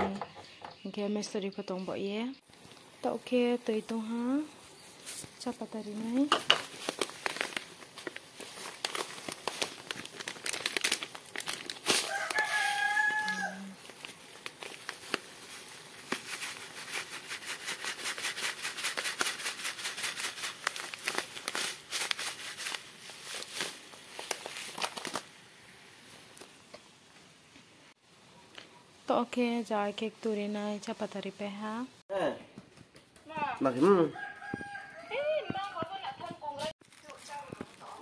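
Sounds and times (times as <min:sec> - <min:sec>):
foil packet crinkling: 0:05.0 - 0:26.5, 0:36.8 - 0:38.0
rooster crowing: 0:12.0 - 0:13.8, 0:33.9 - 0:35.8.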